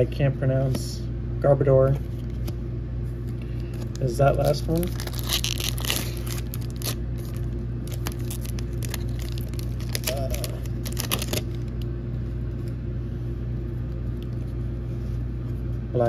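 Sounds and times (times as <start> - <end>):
low hum: 0.0 - 16.0
foil wrapper crinkling and tearing: 3.6 - 11.9.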